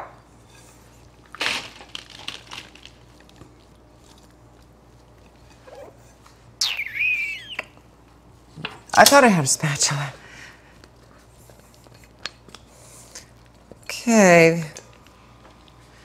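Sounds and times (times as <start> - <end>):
high wavering squeal: 6.6 - 7.8.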